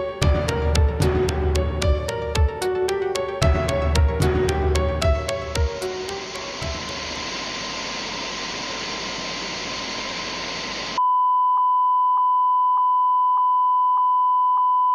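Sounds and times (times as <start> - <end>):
television static hissing: 5.4 - 11.0.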